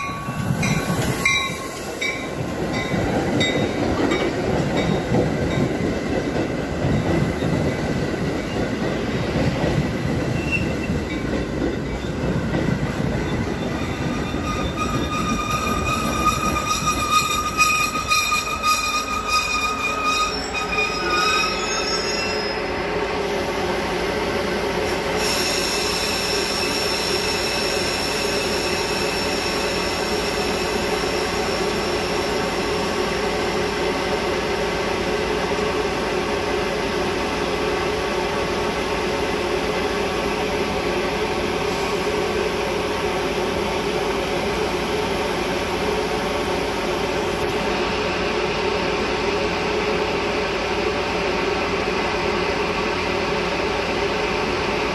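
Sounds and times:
diesel train rumbling: 0.0s - 54.9s
wheels squealing: 13.2s - 22.7s.

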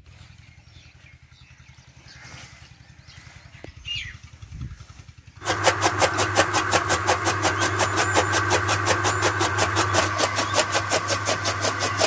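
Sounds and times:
chaff cutter chopping fodder: 5.4s - 12.0s.

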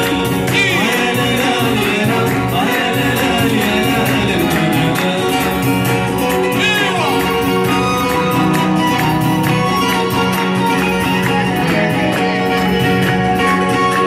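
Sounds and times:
person singing: 0.0s - 8.0s
acoustic guitar: 0.0s - 14.0s
hand percussion beat: 0.0s - 14.0s.

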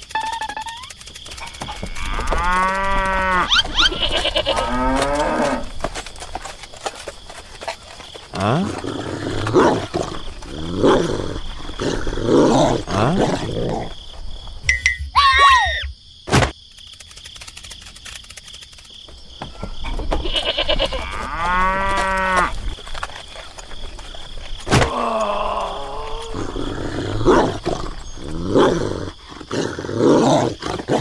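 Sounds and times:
pitched animal calls: 0.1s - 4.9s
cattle lowing: 0.9s - 14.5s, 19.5s - 31.0s.

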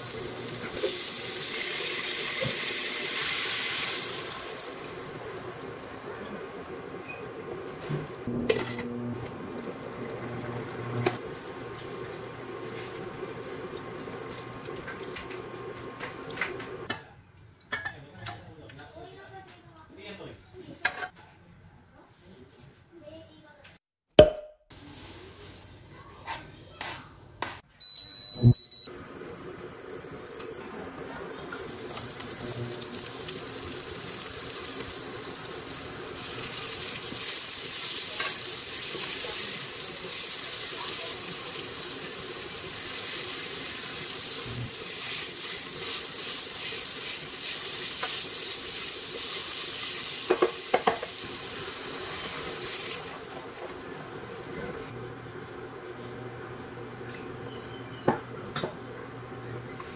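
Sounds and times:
water poured into pan: 0.0s - 5.0s
vegetables sizzling in oil: 0.0s - 7.3s, 9.5s - 16.9s, 29.2s - 54.9s.

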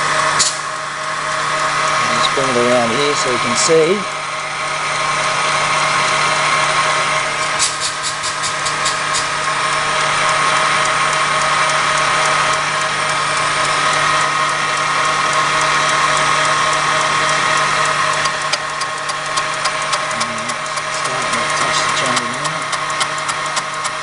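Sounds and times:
cutting machine running: 0.0s - 24.0s
quick ticks: 6.0s - 24.0s.

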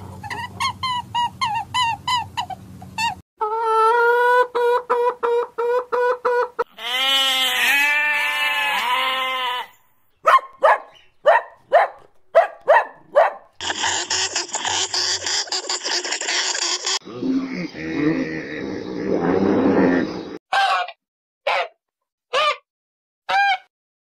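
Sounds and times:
hen clucking: 0.0s - 7.2s
puppy yelping: 0.2s - 3.2s, 10.2s - 13.5s, 20.5s - 22.6s
sheep bleating: 6.7s - 9.8s
scratchy noise: 13.6s - 17.0s.

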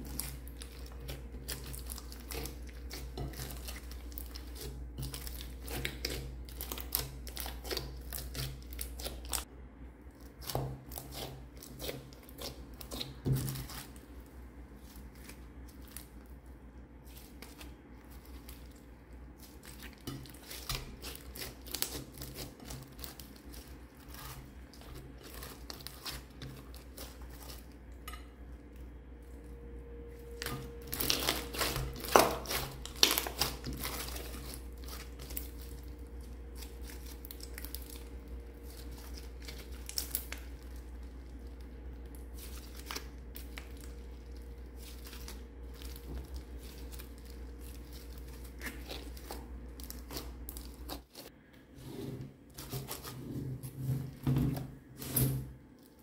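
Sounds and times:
steady low hum: 0.0s - 56.0s
slime crackling and popping: 19.4s - 27.6s, 30.4s - 51.1s.

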